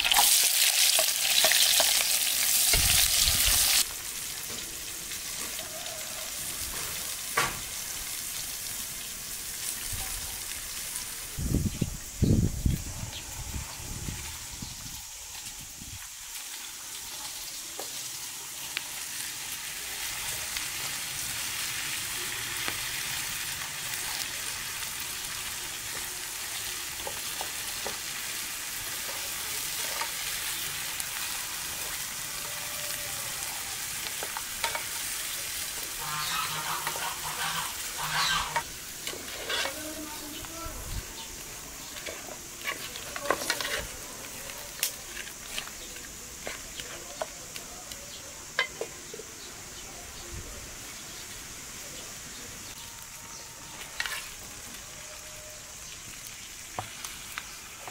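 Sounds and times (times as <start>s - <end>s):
onions sizzling in a pan: 0.0s - 57.9s
wooden spoon scraping a pan: 36.2s - 40.2s, 41.8s - 47.3s, 53.8s - 54.4s.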